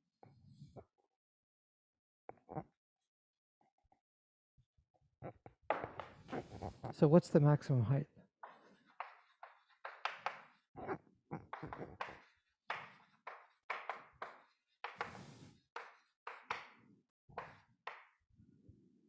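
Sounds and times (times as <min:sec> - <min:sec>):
chalk tapping and scratching on blackboard: 0:08.4 - 0:10.7, 0:11.5 - 0:18.2.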